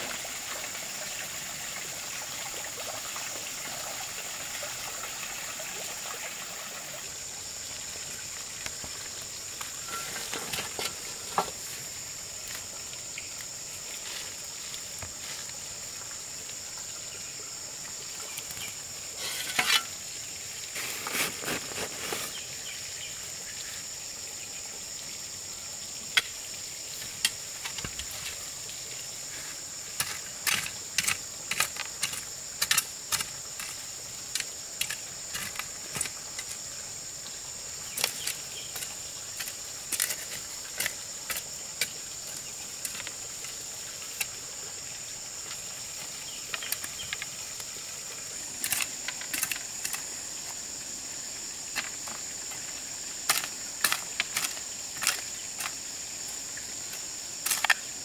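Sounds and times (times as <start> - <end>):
hoe chopping and scraping soil: 9.8 - 11.7, 19.2 - 20.0, 20.8 - 22.4, 30.0 - 36.6, 37.9 - 42.0, 53.2 - 55.8, 57.4 - 57.9.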